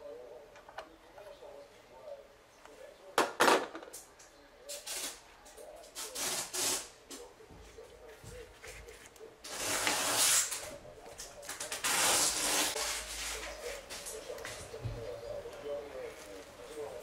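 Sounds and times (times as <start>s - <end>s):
gloved hands rubbing and scraping: 7.7s - 14.8s.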